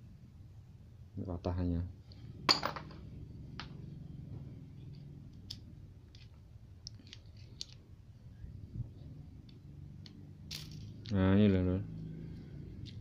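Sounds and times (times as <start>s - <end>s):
low steady hum: 0.0s - 13.0s
small metal parts clicking: 5.3s - 7.8s, 9.4s - 11.2s.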